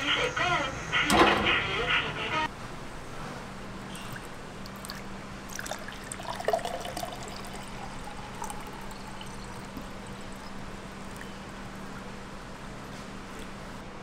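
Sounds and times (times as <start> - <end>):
steady low hum: 0.0 - 14.0
water pouring into a glass: 4.7 - 12.3.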